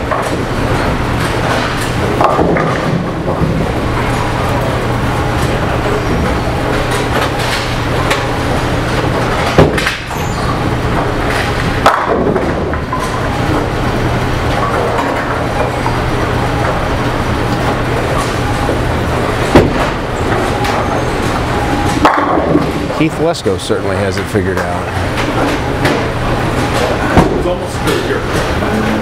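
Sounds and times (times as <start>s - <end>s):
bowling pins crashing: 0.0s - 23.1s
bowling balls rolling: 0.0s - 29.0s.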